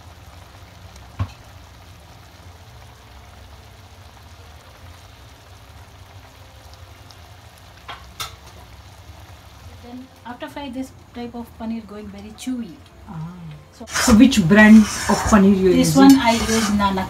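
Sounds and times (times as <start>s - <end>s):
thick sauce bubbling in pan: 0.0s - 11.6s.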